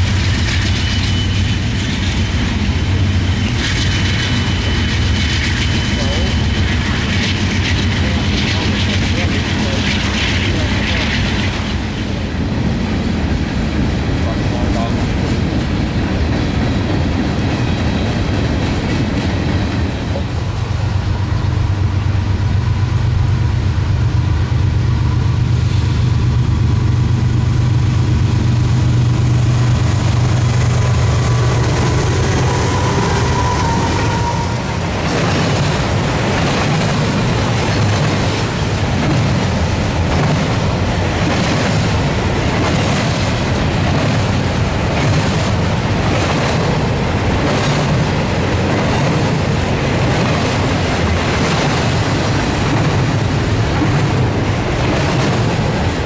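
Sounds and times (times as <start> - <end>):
diesel locomotive drone: 0.0 - 56.0
rumble of rolling freight cars: 0.0 - 56.0.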